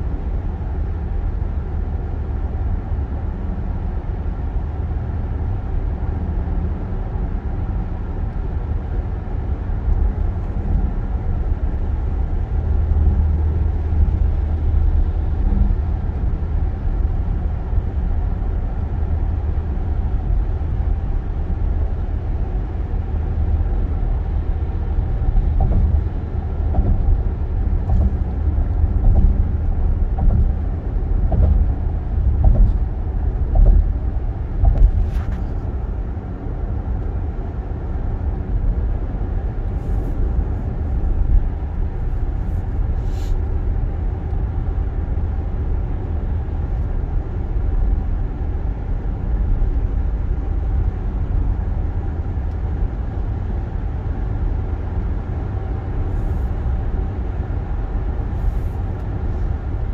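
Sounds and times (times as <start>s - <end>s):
car cabin road noise: 0.0s - 59.9s
short thumps: 25.4s - 32.9s, 33.5s - 34.0s.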